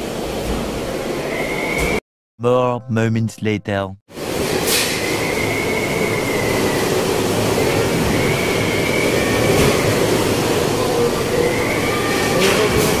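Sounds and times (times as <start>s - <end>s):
high wind whistle: 4.7s - 10.2s.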